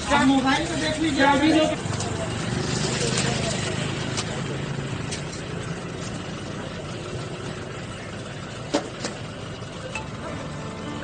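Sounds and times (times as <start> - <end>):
car engine idling: 0.0 - 11.0
street noise: 0.0 - 11.0.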